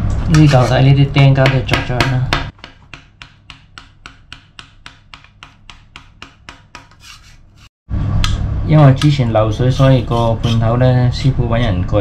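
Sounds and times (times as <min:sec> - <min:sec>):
hand tool rasping on hard surface: 0:06.8 - 0:07.7.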